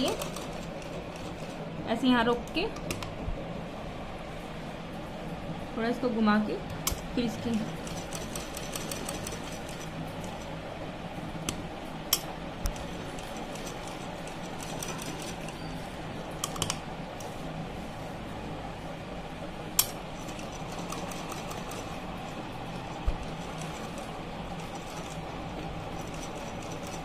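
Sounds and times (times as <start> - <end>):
sewing machine stitching: 0.0 - 1.6, 7.5 - 10.4, 12.7 - 15.7, 20.2 - 27.0.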